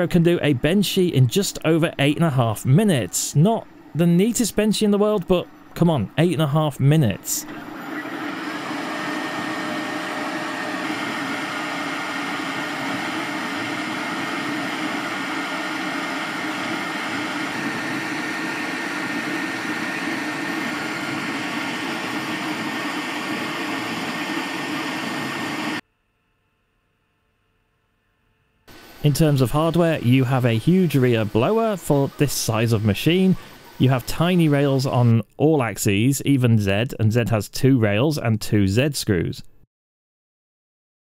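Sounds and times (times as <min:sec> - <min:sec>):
faint high whine: 0:00.0 - 0:25.8, 0:28.2 - 0:35.2
printer fans and motors whirring: 0:00.0 - 0:25.8, 0:28.7 - 0:35.2.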